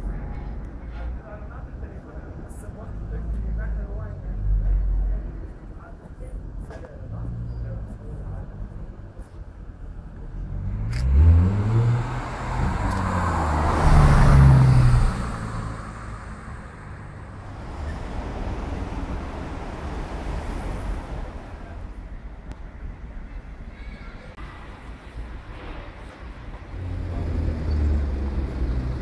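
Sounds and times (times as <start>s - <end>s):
street noise: 0.0s - 29.0s
car engine revving: 10.3s - 20.8s.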